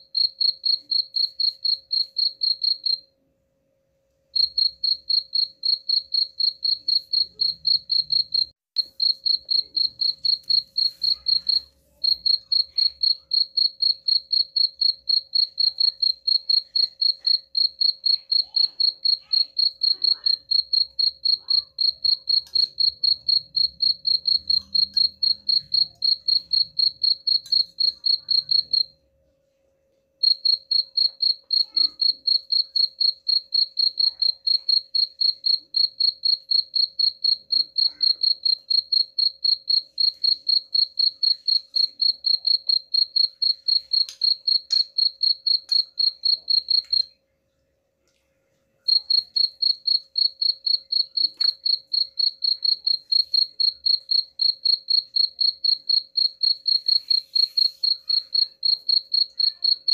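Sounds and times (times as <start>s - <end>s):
cricket chirping: 0.0s - 3.1s, 4.4s - 28.9s, 30.2s - 47.1s, 48.9s - 59.9s.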